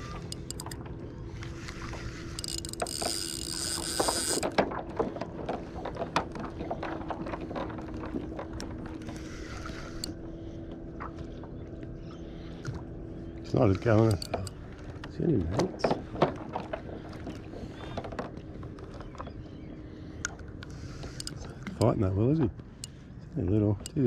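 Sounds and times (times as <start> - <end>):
fishing reel clicking: 0.0 - 0.8, 1.4 - 4.5, 13.7 - 14.6, 20.9 - 21.9
steady low hum: 0.0 - 24.0.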